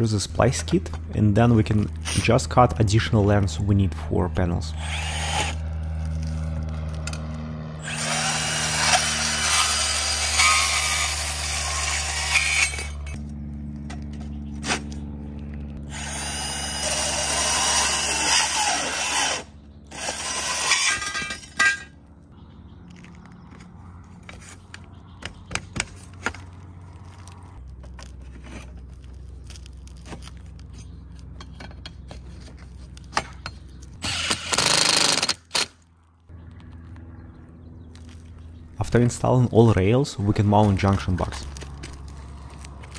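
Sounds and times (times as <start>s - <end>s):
band saw cutting metal: 4.7s - 6.3s, 6.9s - 13.2s, 15.8s - 22.0s, 34.0s - 35.7s.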